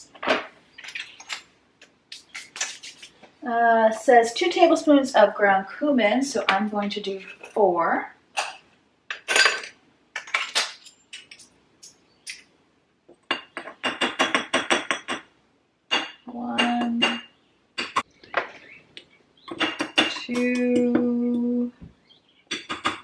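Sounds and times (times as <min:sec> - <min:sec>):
metal spoons clinking on jars: 0:08.4 - 0:12.4.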